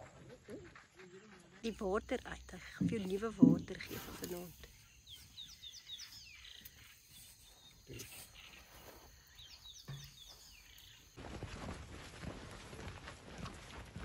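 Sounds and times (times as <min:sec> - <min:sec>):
small bird chirping: 0:01.6 - 0:11.2
soft low thumps: 0:02.6 - 0:04.0.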